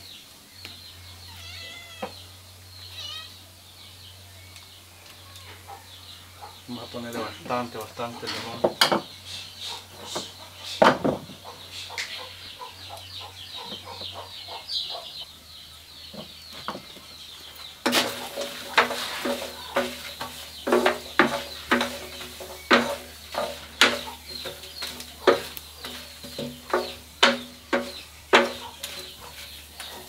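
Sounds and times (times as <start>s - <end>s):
hens clucking: 9.2s - 15.3s, 17.6s - 30.0s
rapid high chirping: 17.3s - 30.0s
sharp knocks: 17.8s - 29.1s.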